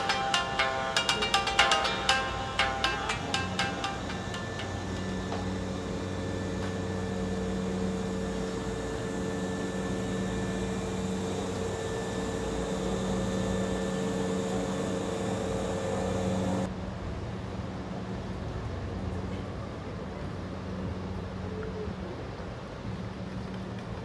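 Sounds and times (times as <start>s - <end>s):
electric train humming: 0.0s - 16.7s.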